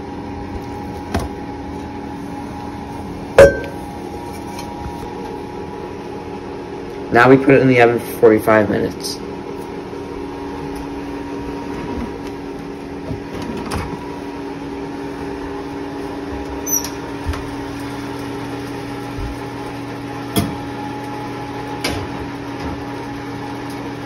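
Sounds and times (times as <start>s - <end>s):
kitchen appliance humming: 0.0s - 24.0s
glass bowl knocking on oven rack: 3.4s - 3.8s
oven door squeaking open: 16.6s - 17.0s.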